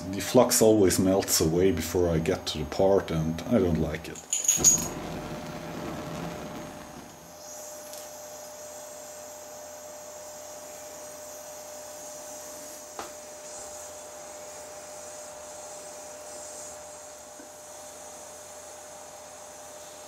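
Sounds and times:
torch flame hissing: 4.6 - 8.6.

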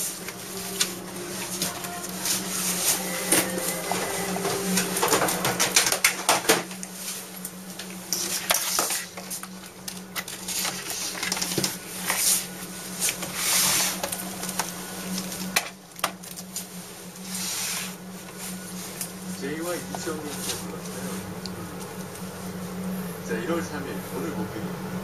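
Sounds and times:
print carriage whirring: 0.0 - 25.0
steady low hum: 0.0 - 25.0
printer clicking and clattering: 3.3 - 6.8.

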